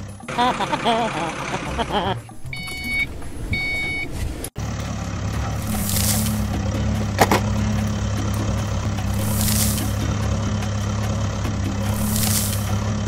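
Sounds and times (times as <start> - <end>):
diesel engine idling: 0.0 - 13.0
hissing swells: 8.0 - 10.2, 11.8 - 13.0.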